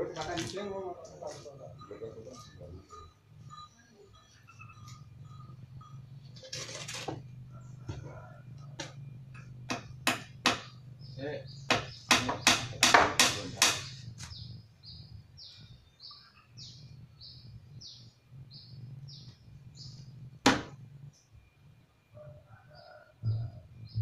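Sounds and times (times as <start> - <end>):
bird calling: 1.1 - 20.2
hammer blows on wood: 11.7 - 14.0.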